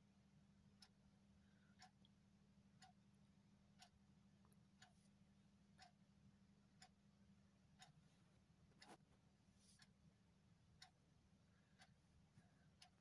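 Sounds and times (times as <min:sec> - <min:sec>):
low steady hum: 0:00.0 - 0:13.0
clock ticking: 0:00.7 - 0:01.0, 0:01.8 - 0:04.9, 0:05.7 - 0:07.0, 0:07.6 - 0:08.0, 0:10.8 - 0:11.1, 0:11.8 - 0:13.0.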